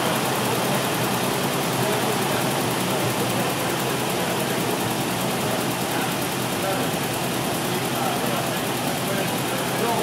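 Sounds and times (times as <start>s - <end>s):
car engine running steadily: 0.0s - 10.0s.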